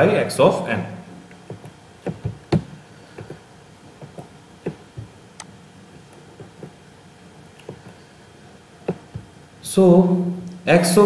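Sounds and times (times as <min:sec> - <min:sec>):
light clicks and knocks: 0:01.4 - 0:03.4, 0:04.0 - 0:06.8, 0:08.8 - 0:09.3.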